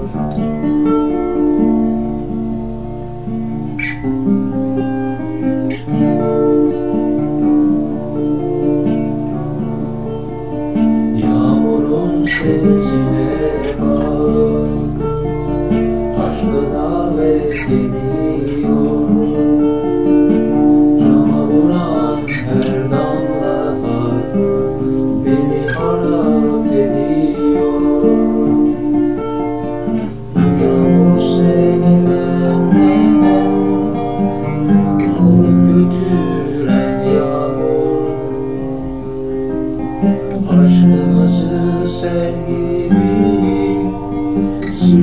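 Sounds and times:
acoustic guitar: 0.0s - 45.0s.

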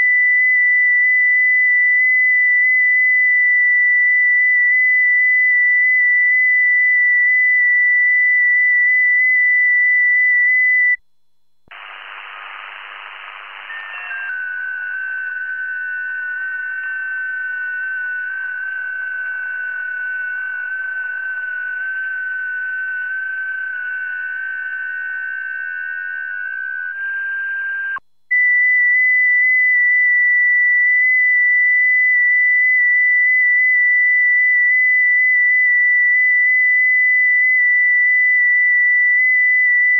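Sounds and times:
shortwave receiver hiss: 11.7s - 14.3s
digital transmit tone: 11.7s - 28.8s.

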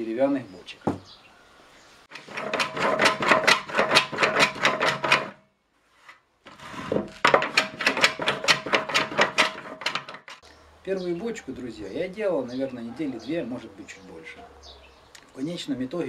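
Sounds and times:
hand plane scraping wood: 2.1s - 5.4s, 6.0s - 10.4s.

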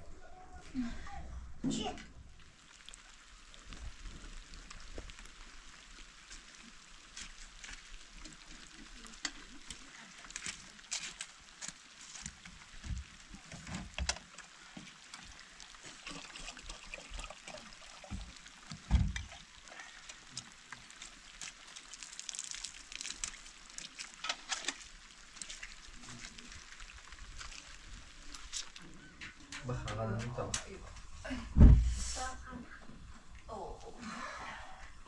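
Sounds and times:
water trickling and sloshing: 1.2s - 35.0s
heavy thump: 31.6s - 32.1s.

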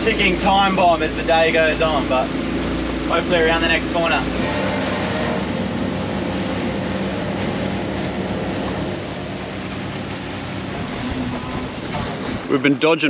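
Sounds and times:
motorboat engine drone: 0.0s - 13.0s
water rushing along hull: 0.0s - 13.0s
wind: 0.0s - 13.0s.

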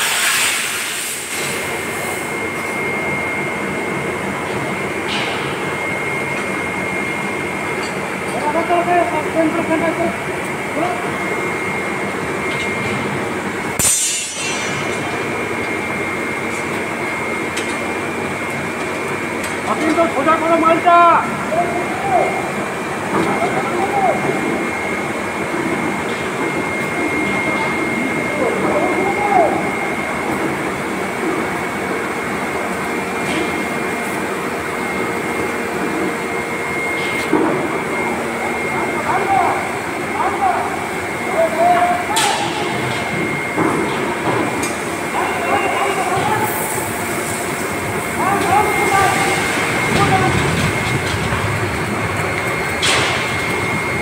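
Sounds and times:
sharp burst with hiss: 0.0s - 1.6s
machinery drone with high whine: 0.0s - 54.0s.

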